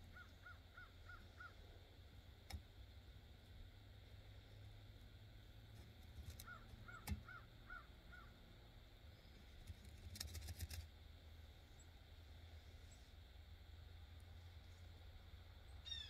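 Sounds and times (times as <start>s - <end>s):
crow cawing: 0.1s - 1.6s, 6.4s - 8.3s.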